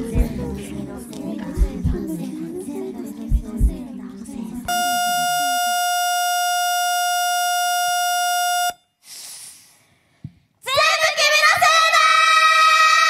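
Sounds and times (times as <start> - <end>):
music with deep thumps: 0.0 - 0.8, 1.5 - 2.1, 3.3 - 3.8
loud electronic beep tone: 4.7 - 8.9.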